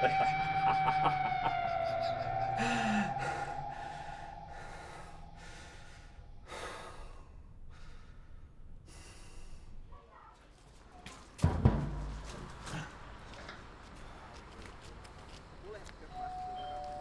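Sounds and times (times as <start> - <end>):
man breathing heavily: 2.1 - 9.9.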